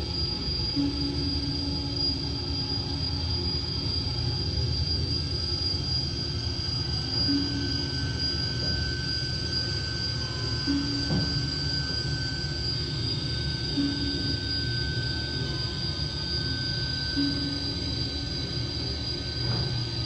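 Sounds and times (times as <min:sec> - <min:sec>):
high-pitched whine: 0:00.0 - 0:20.0
low rumbling drone: 0:00.0 - 0:20.0
short low hum tone: 0:10.2 - 0:11.8, 0:13.8 - 0:14.7.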